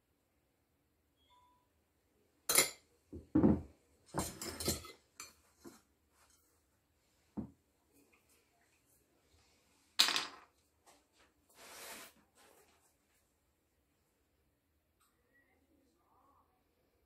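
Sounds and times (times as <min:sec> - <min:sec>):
cutlery clinking on ceramic plates: 0:02.5 - 0:05.8.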